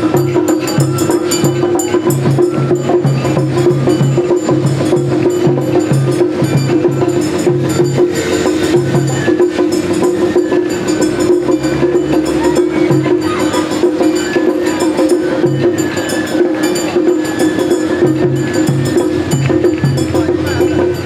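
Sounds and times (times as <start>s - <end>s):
crisp percussion strikes: 0.0s - 21.0s.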